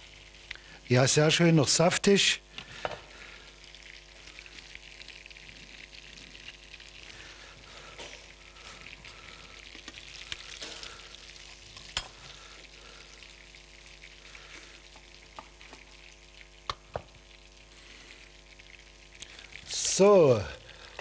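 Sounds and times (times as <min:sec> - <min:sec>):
oil sizzling in a frying pan: 0:00.0 - 0:21.0.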